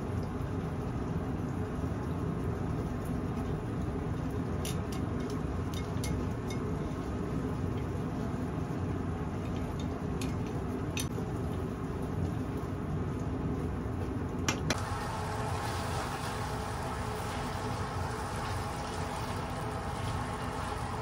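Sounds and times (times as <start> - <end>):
food sizzling in a pan: 14.8 - 21.0.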